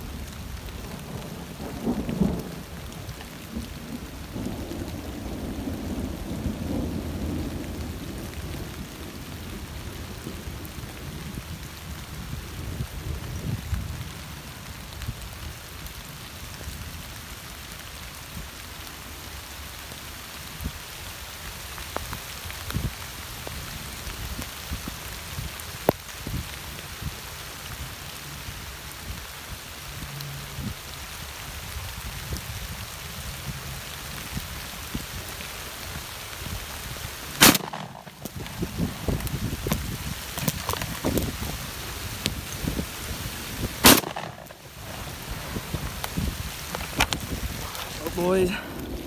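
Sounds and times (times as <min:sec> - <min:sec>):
steady rain falling: 0:00.0 - 0:49.0
loud shotgun blast: 0:37.4 - 0:38.1, 0:43.8 - 0:44.6.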